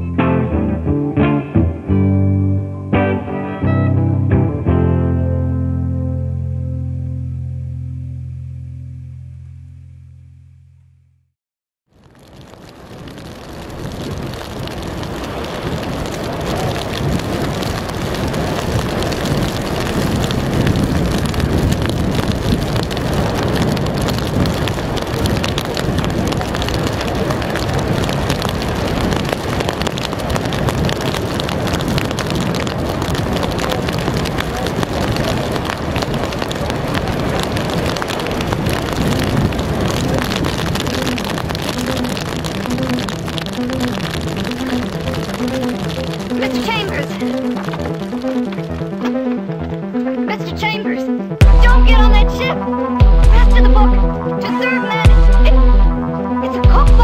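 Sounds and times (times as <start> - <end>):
wind buffeting microphone: 12.2 - 46.2
surf breaking against rocks: 12.3 - 47.8.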